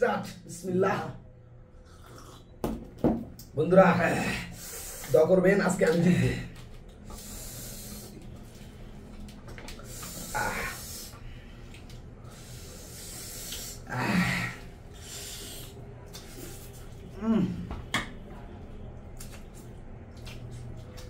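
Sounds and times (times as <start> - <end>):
chewing: 19.0 - 21.0.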